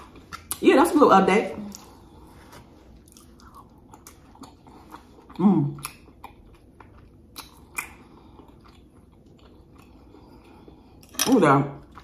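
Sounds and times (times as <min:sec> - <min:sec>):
mouth chewing food: 0:03.0 - 0:11.0.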